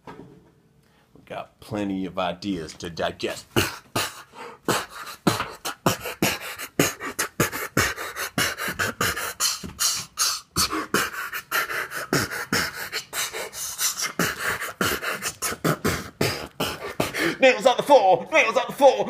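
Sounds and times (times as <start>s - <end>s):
person beatboxing: 3.4s - 17.4s.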